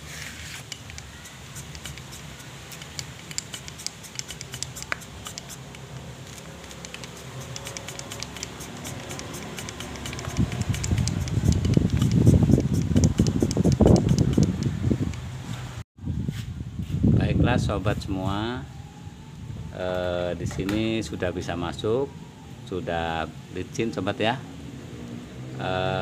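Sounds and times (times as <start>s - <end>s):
piston scraping in cylinder bore: 0.0s - 14.8s.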